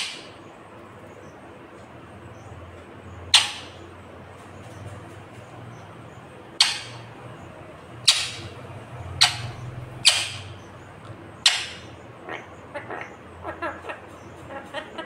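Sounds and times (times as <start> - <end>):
parakeet beak pecking metal door: 6.6 - 7.0.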